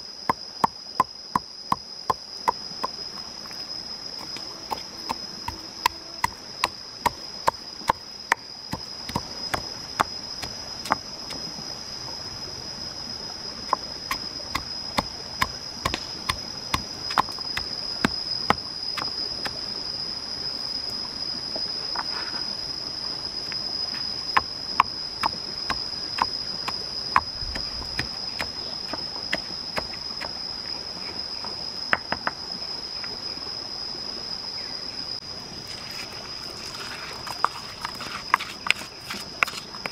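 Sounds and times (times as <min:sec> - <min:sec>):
high insect drone: 0:00.0 - 0:39.9
pestle pounding in stone mortar: 0:04.2 - 0:11.4, 0:37.3 - 0:39.9.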